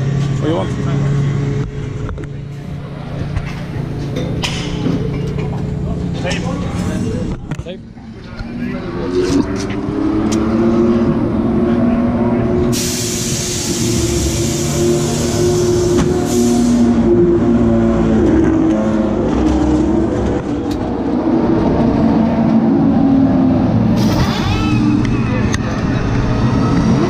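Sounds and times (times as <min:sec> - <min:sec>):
loud rushing hiss: 0:12.8 - 0:16.8.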